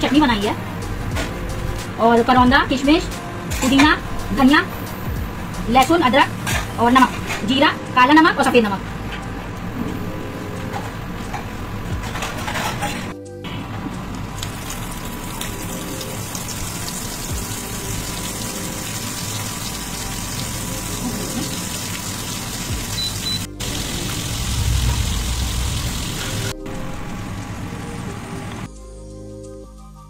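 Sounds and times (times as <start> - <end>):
food sizzling in hot oil: 14.4 - 27.6.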